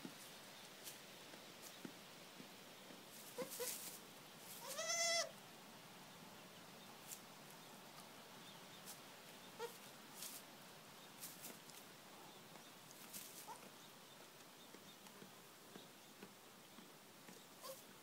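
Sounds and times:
goat kid bleating: 0:03.2 - 0:03.8, 0:04.6 - 0:05.4, 0:09.6 - 0:09.8, 0:13.4 - 0:13.7, 0:17.6 - 0:17.8
faint squeaks: 0:17.6 - 0:17.8.

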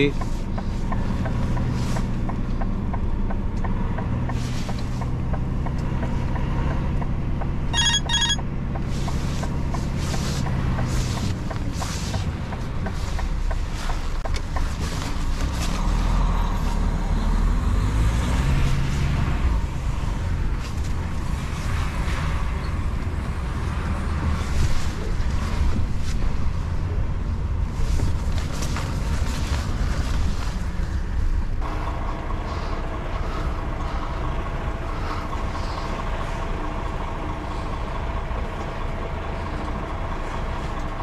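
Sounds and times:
truck diesel engine running: 0:00.0 - 0:41.0
electronic beeping chime: 0:07.7 - 0:08.4.

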